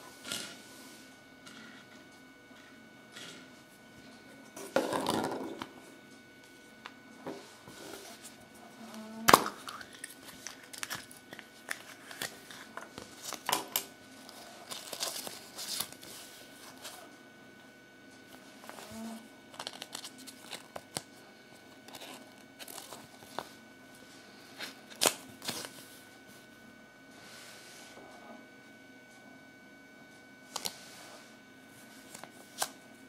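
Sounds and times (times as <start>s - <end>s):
paper leaflet crinkling: 9.7s - 13.5s, 14.2s - 17.0s, 19.5s - 21.0s.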